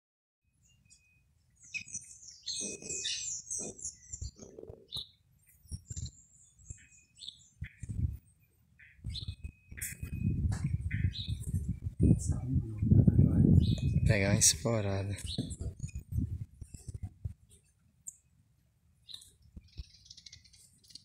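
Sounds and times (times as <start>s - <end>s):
small birds chirping: 0.5s - 18.4s, 19.0s - 21.0s
low rumbles: 9.1s - 17.4s.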